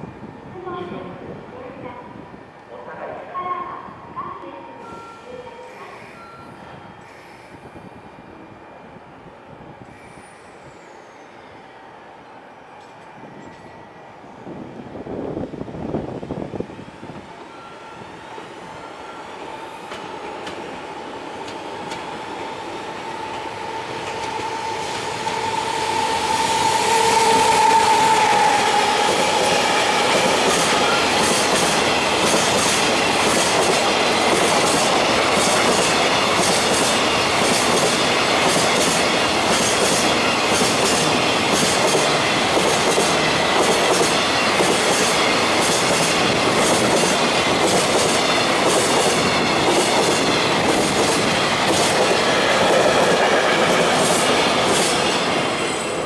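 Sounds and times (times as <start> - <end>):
electric locomotive whine: 0.0 - 56.0
train wheels clickety-clack: 19.8 - 20.7, 21.4 - 22.5, 23.2 - 56.0.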